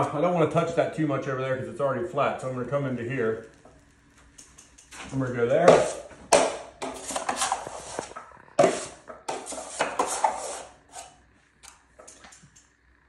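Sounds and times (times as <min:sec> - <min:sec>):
knife scraping joint compound: 0:04.9 - 0:12.3.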